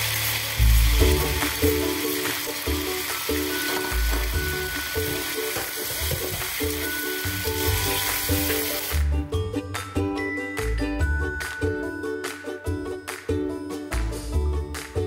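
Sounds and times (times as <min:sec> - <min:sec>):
food sizzling in oil: 0:00.0 - 0:09.0
background music: 0:00.0 - 0:15.0.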